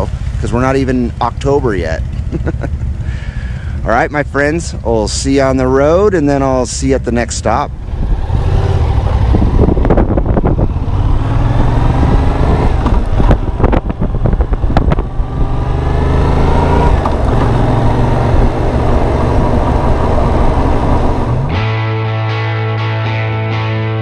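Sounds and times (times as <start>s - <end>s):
motorcycle engine accelerating: 0.0s - 4.0s, 7.7s - 22.3s.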